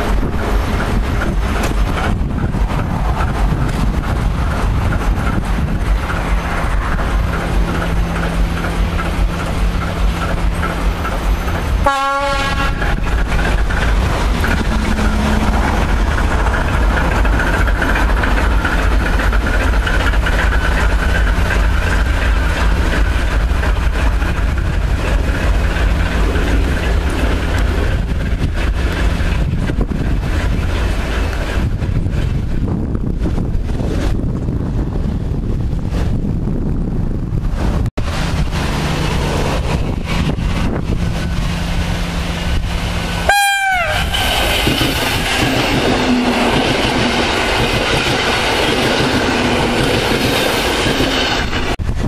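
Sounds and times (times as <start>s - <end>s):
diesel locomotive engine running: 0.0s - 52.0s
locomotive horn blast: 11.8s - 12.9s, 14.6s - 15.8s, 43.2s - 44.5s.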